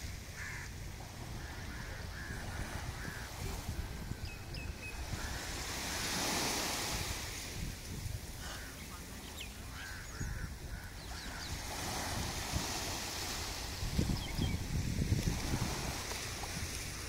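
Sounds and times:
small waves washing ashore: 0.0 - 17.0
wind buffeting microphone: 0.0 - 17.0
faint distant calls: 0.3 - 7.2, 8.3 - 14.7.

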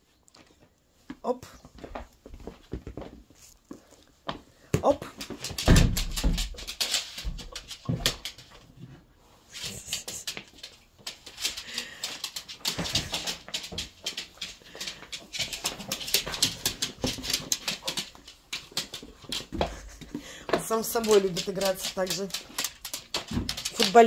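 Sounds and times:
dog claws skittering on floor: 5.0 - 8.8, 9.5 - 24.0
dog landing thuds: 5.6 - 6.6.

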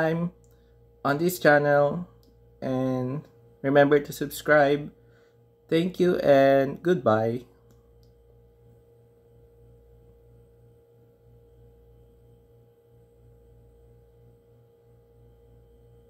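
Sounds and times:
low steady hum: 0.0 - 16.0
thin steady pitched tone: 0.0 - 16.0.

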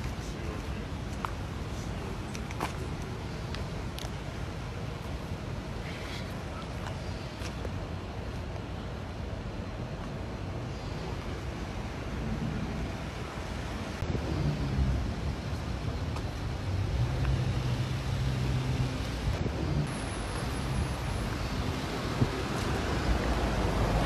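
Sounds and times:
road traffic hiss: 0.0 - 24.0
low engine hum: 10.5 - 24.0.

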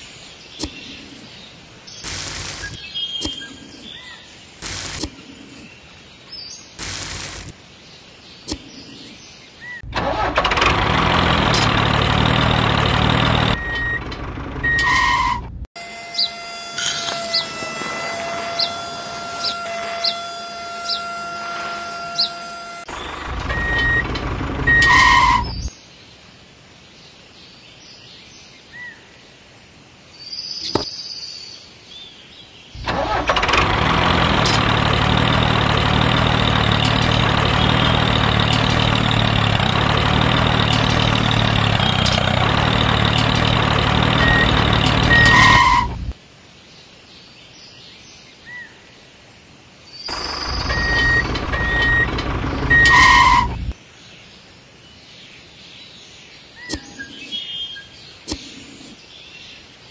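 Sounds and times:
tractor engine running: 2.0 - 3.9, 4.6 - 5.6, 6.8 - 7.5, 9.8 - 25.7, 32.8 - 46.2, 50.1 - 53.8.

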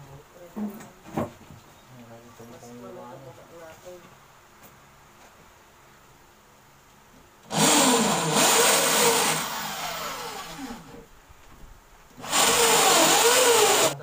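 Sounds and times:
electric drill running: 7.5 - 11.0, 12.2 - 14.0.

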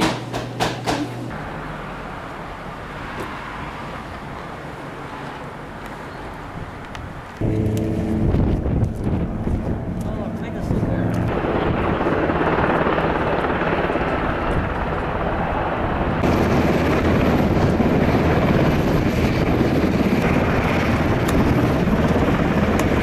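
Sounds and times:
propeller plane engine running: 7.3 - 23.0.

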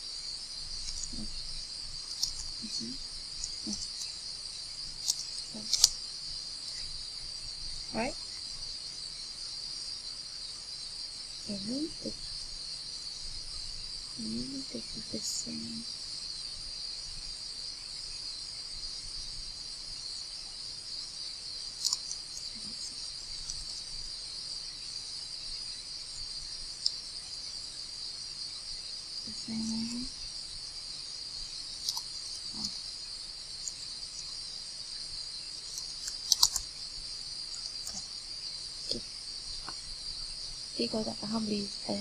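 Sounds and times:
crickets chirping: 0.0 - 42.0
sharp clicks: 2.1 - 2.6, 5.0 - 6.0, 21.8 - 22.2, 31.8 - 32.8, 35.7 - 36.7.

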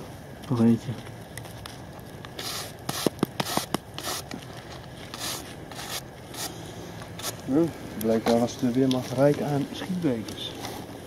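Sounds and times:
gloved hands scraping soil off metal: 2.3 - 7.4.

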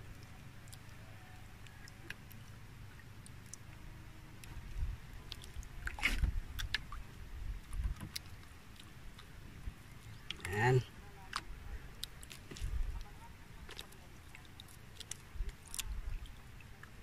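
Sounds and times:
wind and water rumble: 0.0 - 17.0
clicks and rustles of fishing line: 5.2 - 7.0, 11.3 - 16.9.

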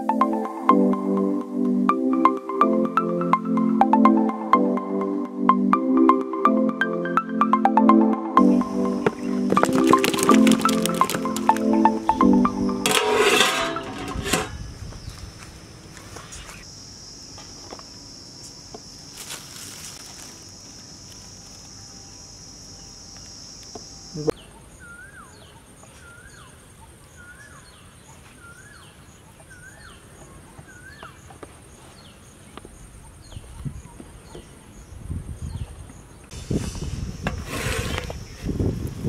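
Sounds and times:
high insect buzz: 8.4 - 24.4.

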